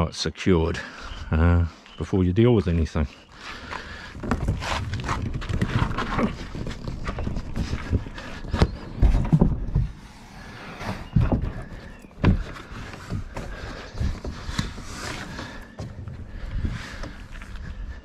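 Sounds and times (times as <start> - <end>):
scuffing and rubbing: 3.5 - 17.7.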